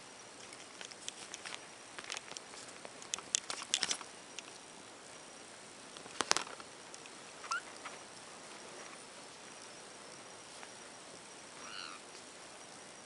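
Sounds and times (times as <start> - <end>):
soft clicks and rustles on bedding: 0.4 - 5.2, 5.9 - 9.2, 10.5 - 11.2
kitten squeak: 7.4 - 7.7.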